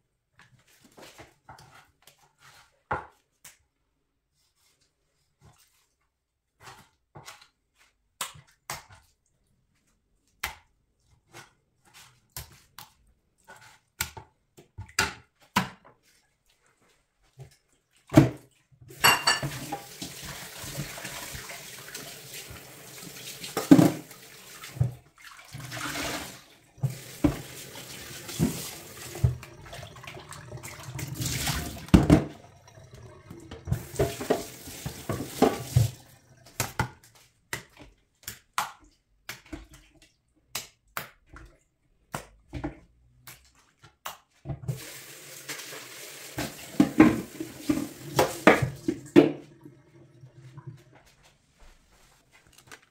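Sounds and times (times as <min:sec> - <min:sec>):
tap water running into sink: 0:18.9 - 0:37.0, 0:44.7 - 0:51.2
bowl knocking: 0:19.0 - 0:19.6
water splashing: 0:19.0 - 0:37.1.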